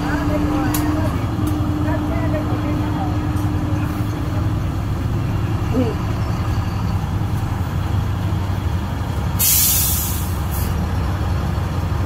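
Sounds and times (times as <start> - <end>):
loud hiss: 9.4 - 10.7.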